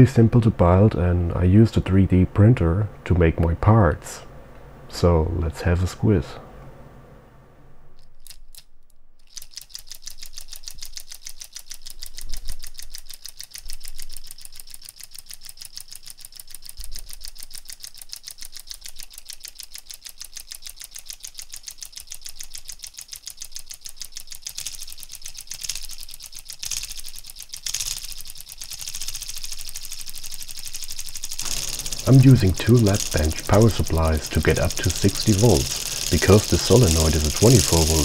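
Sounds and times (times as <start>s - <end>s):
solenoid engine clicking: 9.2s - 38.0s.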